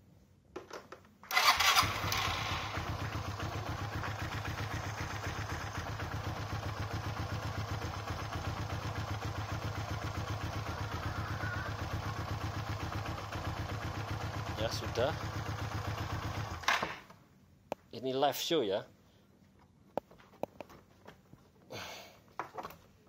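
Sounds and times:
motorcycle engine starting and idling: 1.2 - 17.2.

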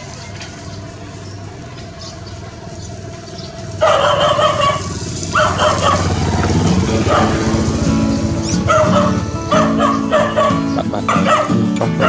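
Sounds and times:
dog yelping: 3.8 - 6.3, 6.9 - 12.0.

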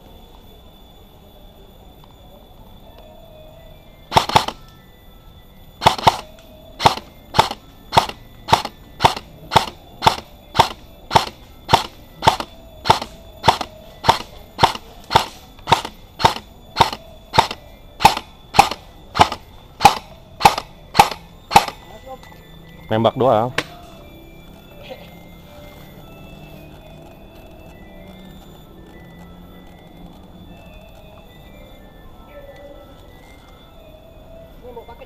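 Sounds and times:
airsoft gun shots: 4.1 - 4.6, 5.8 - 21.9.

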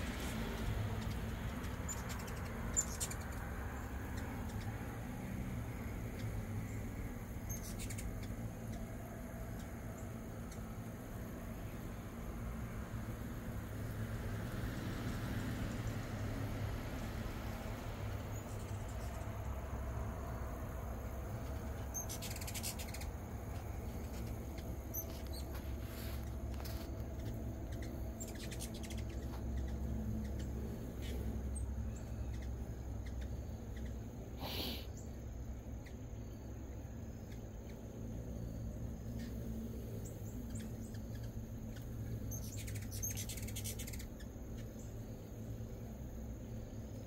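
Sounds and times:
hummingbirds chittering: 0.0 - 47.0.

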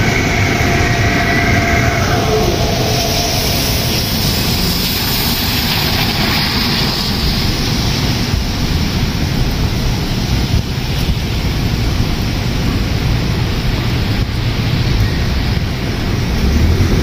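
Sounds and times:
rain hiss: 0.0 - 17.0
wind buffeting microphone: 0.0 - 17.0.

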